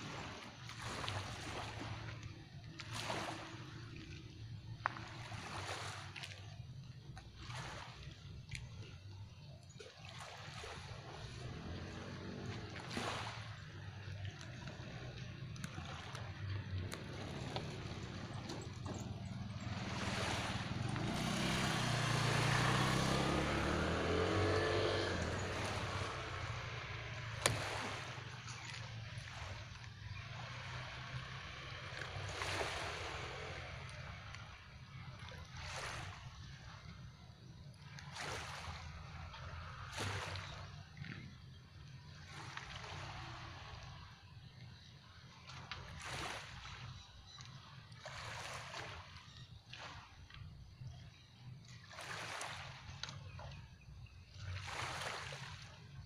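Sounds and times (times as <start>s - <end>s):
water washing against pier: 0.0s - 9.0s, 9.8s - 41.1s, 54.4s - 56.0s
engine passing by: 10.2s - 44.3s, 51.8s - 53.5s, 54.3s - 56.0s.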